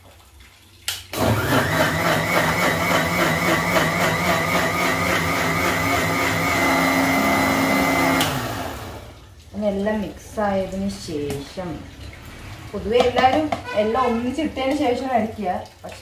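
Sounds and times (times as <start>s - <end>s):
mixer grinder motor blending: 1.2s - 9.1s.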